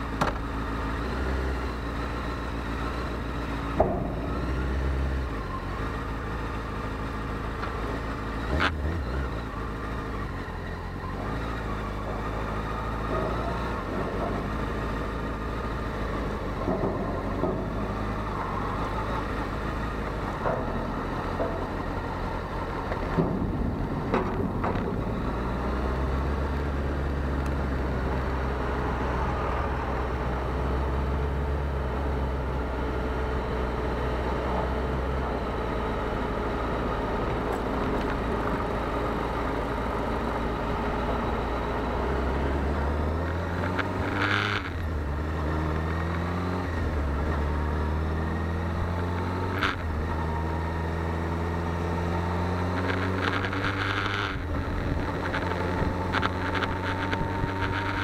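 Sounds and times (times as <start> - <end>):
motorcycle engine revving: 0.0 - 58.0
motorcycle gear shifts: 37.2 - 58.0.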